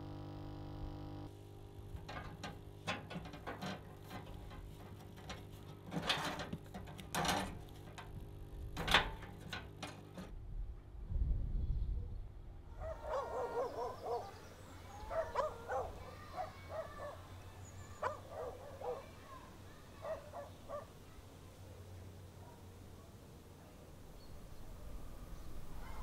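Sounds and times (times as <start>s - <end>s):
animal calling: 12.8s - 20.9s.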